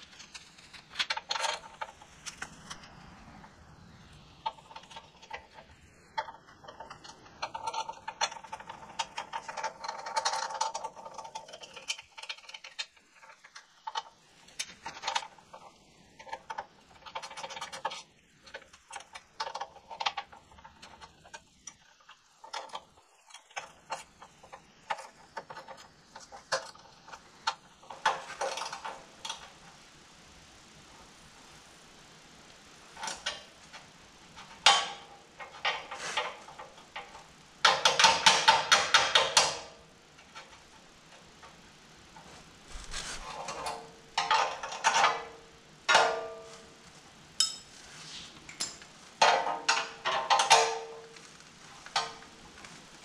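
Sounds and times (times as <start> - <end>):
ratchet clicking: 34.3 - 40.7
light metal clinks: 47.4 - 47.8.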